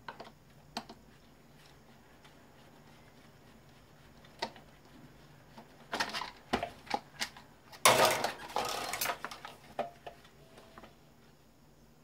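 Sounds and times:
rattling clatter of parts: 0:07.8 - 0:09.9.

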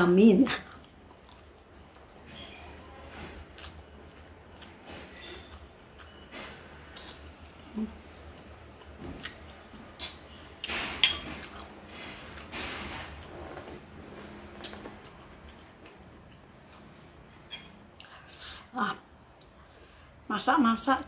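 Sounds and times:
chewing: 0:00.7 - 0:06.5, 0:14.6 - 0:17.0
spoon clinking on plate: 0:06.9 - 0:07.4.

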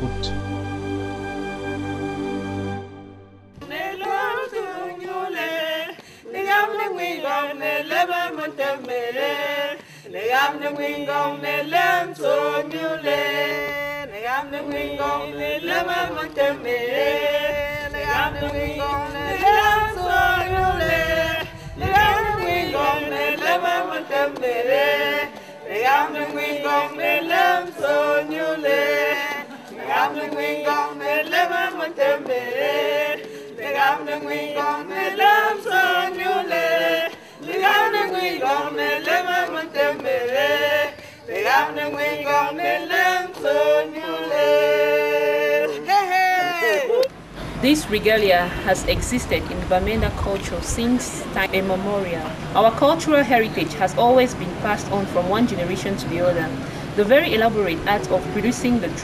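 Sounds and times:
group singing: 0:00.0 - 0:59.0
low rumble: 0:15.0 - 0:23.4.

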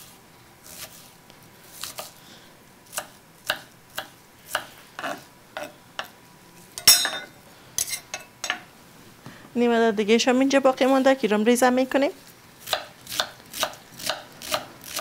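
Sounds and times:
knife chopping on wooden board: 0:02.9 - 0:06.1, 0:12.7 - 0:15.0.

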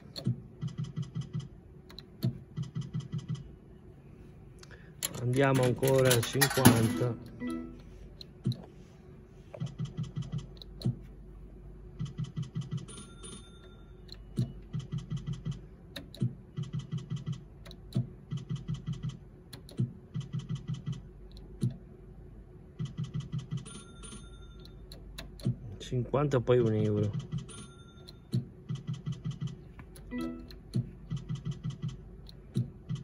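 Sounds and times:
slot machine click: 0:05.0 - 0:07.8, 0:26.6 - 0:31.5
electronic ticks of spinning reels: 0:22.9 - 0:25.4.

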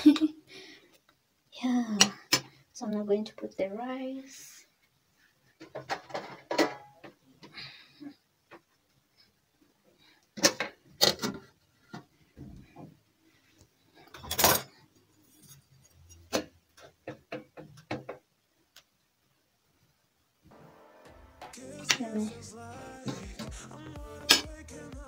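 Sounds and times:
metal pots and lids clanking: 0:05.8 - 0:07.1.

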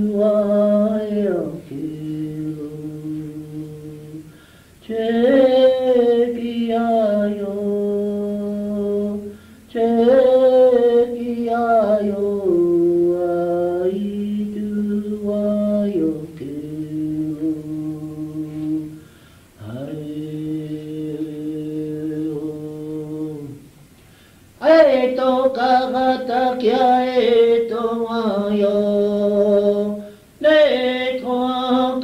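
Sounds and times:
man chanting in long held notes: 0:00.0 - 0:19.0, 0:19.6 - 0:23.6, 0:24.6 - 0:32.0
faint steady hum: 0:00.0 - 0:32.0.

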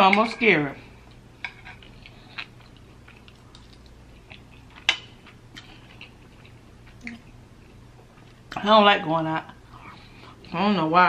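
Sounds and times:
chewing: 0:01.5 - 0:08.6.

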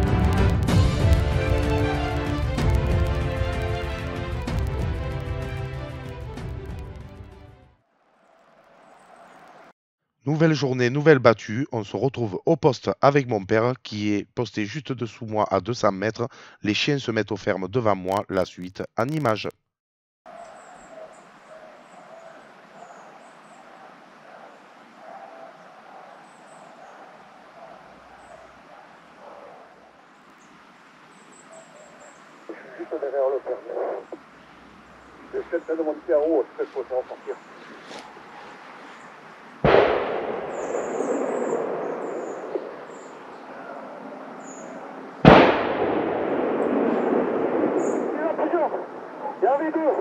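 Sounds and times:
faint dogs baying: 0:20.3 - 0:30.1, 0:31.4 - 0:39.2, 0:40.6 - 0:45.2
gunshots with rolling echo: 0:39.6 - 0:50.0
high bird chirps: 0:40.5 - 0:43.5, 0:44.4 - 0:44.9.

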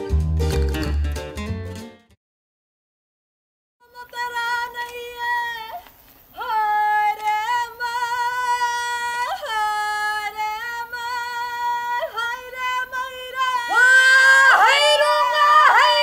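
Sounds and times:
woman's high calling voice: 0:03.8 - 0:16.0.

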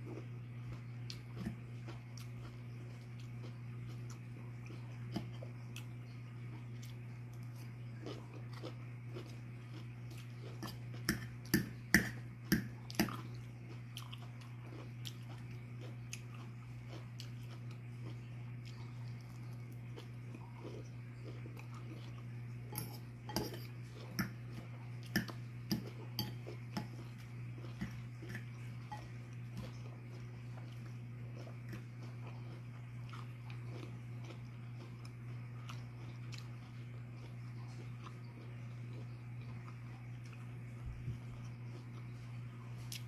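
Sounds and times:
chewing and crunching: 0:00.0 - 0:43.0
fork scraping in bowl: 0:22.7 - 0:24.3.

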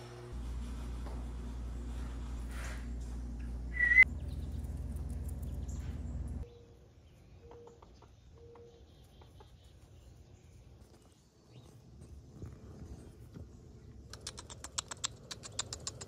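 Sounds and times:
birds chirping: 0:03.8 - 0:16.0.

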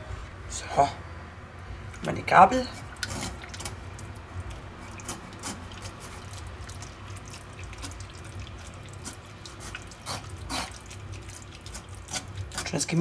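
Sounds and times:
gravy dripping through sieve: 0:01.6 - 0:13.0.

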